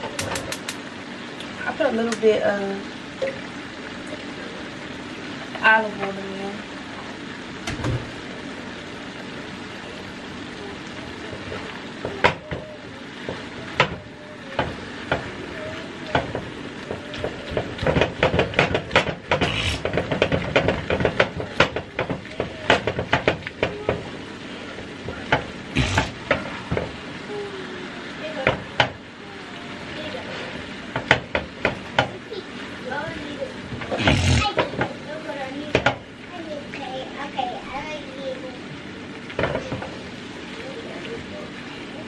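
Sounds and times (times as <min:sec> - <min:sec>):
meat sizzling in a skillet: 0:00.1 - 0:42.0
spatula scraping a pan: 0:19.3 - 0:21.2.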